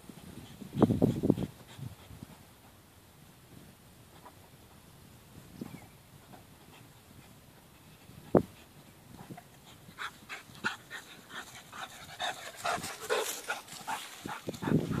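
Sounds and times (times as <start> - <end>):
dog panting: 6.6 - 15.0.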